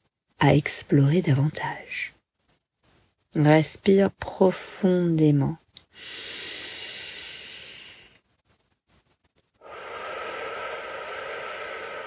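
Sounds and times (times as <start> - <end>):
person breathing deeply: 5.9 - 8.2, 9.6 - 12.0.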